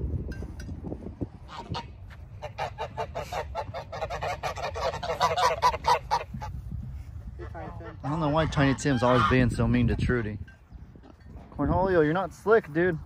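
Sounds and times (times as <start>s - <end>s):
geese honking: 1.4s - 6.6s, 7.4s - 10.4s.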